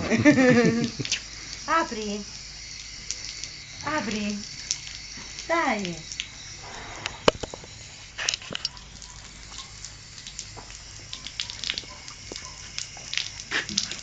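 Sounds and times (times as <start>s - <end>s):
water running from hose: 0.0s - 14.0s
horse mouthing wet clicks: 0.8s - 1.7s, 8.2s - 14.0s.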